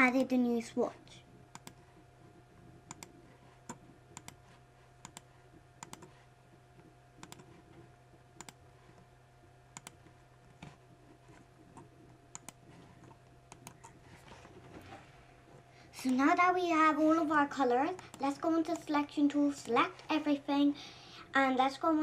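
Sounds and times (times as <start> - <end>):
faint electrical hum: 0.0 - 22.0
computer mouse clicks: 1.5 - 2.0, 2.8 - 6.2, 6.8 - 9.1, 9.7 - 10.7, 11.3 - 14.0, 17.9 - 18.9.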